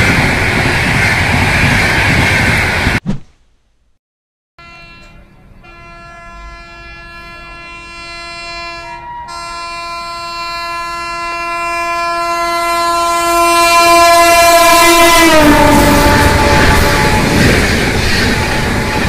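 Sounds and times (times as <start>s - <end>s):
train rumbling on rails: 0.0s - 3.0s, 4.6s - 19.0s
locomotive horn blast: 4.6s - 17.5s.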